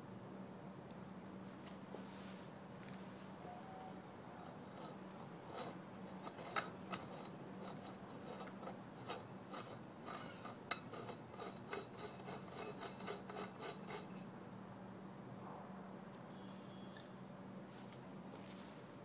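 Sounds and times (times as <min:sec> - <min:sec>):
faint steady hum: 0:00.0 - 0:19.0
metal threads scraping and clicking: 0:04.4 - 0:14.3.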